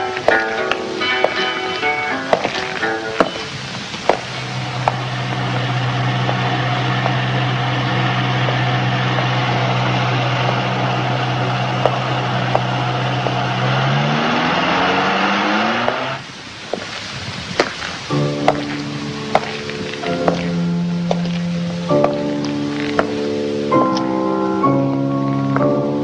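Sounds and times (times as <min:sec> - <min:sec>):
motor droning: 0:04.4 - 0:16.2.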